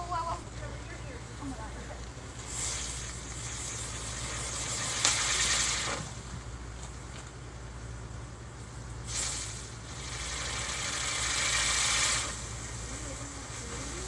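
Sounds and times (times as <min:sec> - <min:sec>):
steady low hum: 0:00.0 - 0:14.0
firework hissing sparks: 0:01.0 - 0:14.0.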